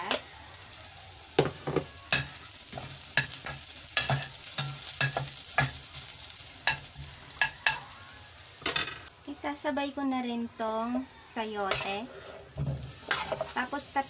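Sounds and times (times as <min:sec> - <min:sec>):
food sizzling in oil: 0:00.0 - 0:10.5, 0:11.6 - 0:14.0
metal spoon scraping a pot: 0:11.6 - 0:13.6.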